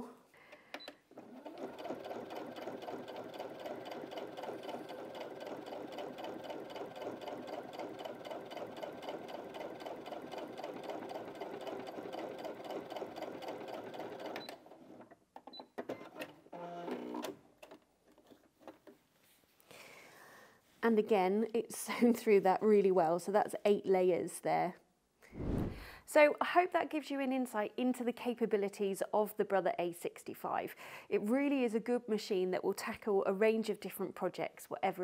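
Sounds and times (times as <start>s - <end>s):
sewing machine stitching: 1.1s - 15.1s.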